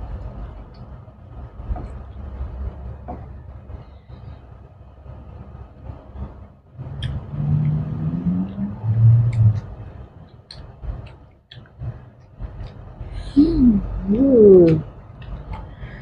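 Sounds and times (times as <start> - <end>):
low hum rising in pitch: 5.8 - 10.6, 11.8 - 16.0
eating smacks and chewing clicks: 9.3 - 12.9.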